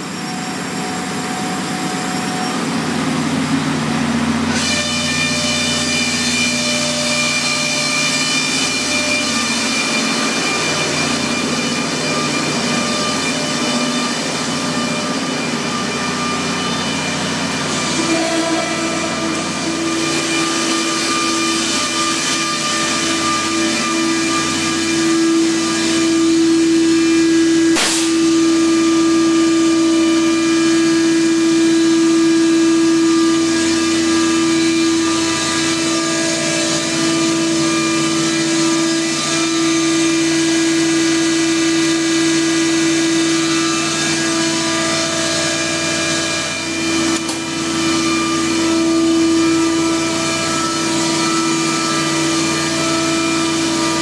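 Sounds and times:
large engine droning: 0:00.0 - 0:54.0
sharp knock: 0:27.8 - 0:28.2.

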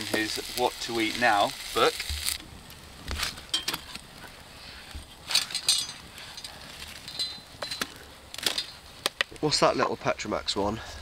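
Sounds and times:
campfire crackling and popping: 0:00.0 - 0:05.3, 0:06.0 - 0:09.9
light clinks: 0:05.3 - 0:07.9.

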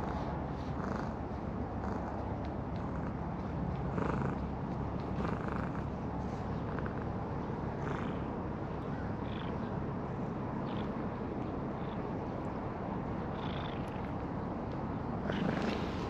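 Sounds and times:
cat purring: 0:00.0 - 0:06.0, 0:06.6 - 0:08.3, 0:13.3 - 0:14.2, 0:15.2 - 0:16.0.

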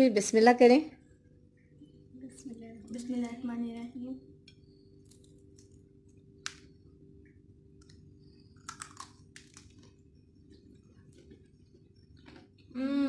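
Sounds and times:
steady low hum: 0:00.0 - 0:13.0
chewing crispy chicken: 0:07.8 - 0:12.8.

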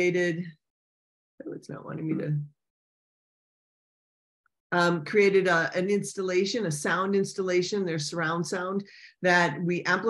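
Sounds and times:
person talking: 0:00.0 - 0:00.5, 0:01.4 - 0:02.5, 0:04.7 - 0:10.0.

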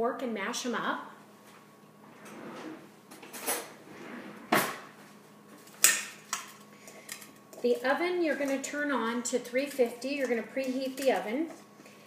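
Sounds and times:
kitchen drawer sliding: 0:02.1 - 0:04.9.

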